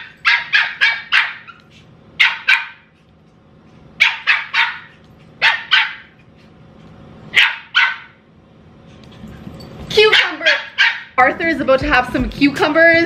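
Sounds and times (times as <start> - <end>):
puppy yapping: 0.0 - 2.9, 4.0 - 6.2, 7.3 - 8.2, 10.0 - 11.2.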